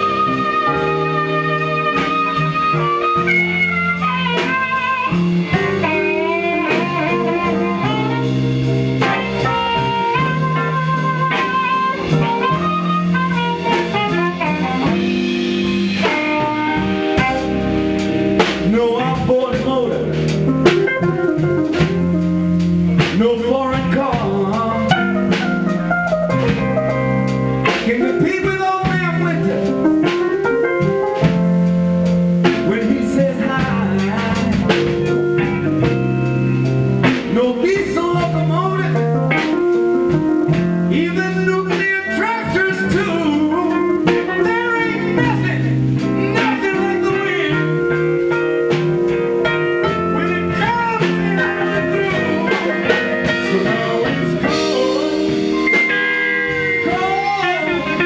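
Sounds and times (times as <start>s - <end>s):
amplified harmonica lead: 0.0s - 19.4s, 24.6s - 27.7s, 39.2s - 58.0s
drums: 0.0s - 58.0s
live blues band playing: 0.0s - 58.0s.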